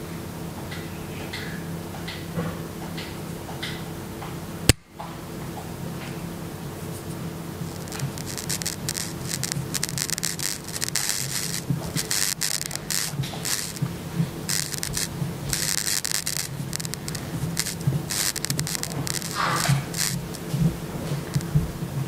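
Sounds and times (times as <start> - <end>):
potentiometer scratchy crackling: 6.9 - 22.0.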